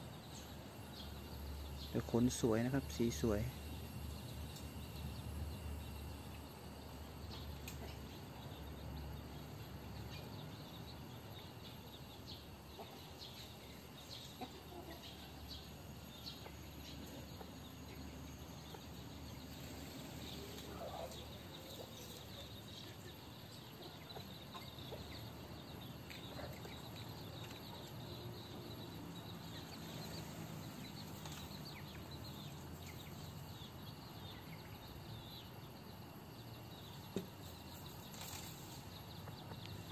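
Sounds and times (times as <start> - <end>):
outdoor background noise: 0.0 - 39.9
chickens clucking: 7.2 - 8.6, 11.5 - 34.8, 36.9 - 39.9.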